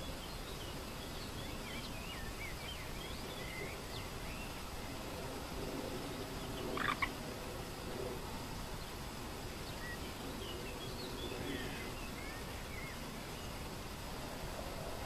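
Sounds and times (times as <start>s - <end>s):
steady background hiss: 0.0s - 15.0s
small birds chirping: 6.0s - 7.1s.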